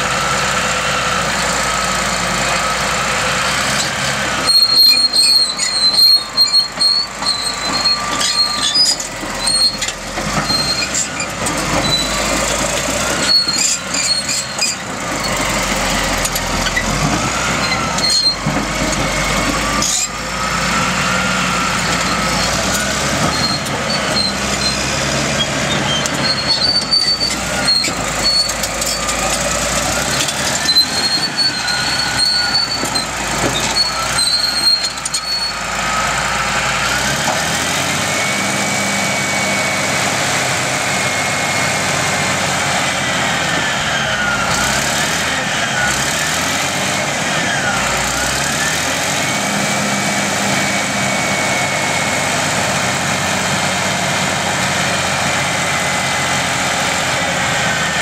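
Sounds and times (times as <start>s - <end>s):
bulldozer running: 0.0s - 58.0s
high engine whine: 0.0s - 58.0s
steel tracks clanking on gravel: 3.6s - 20.9s, 21.5s - 35.6s.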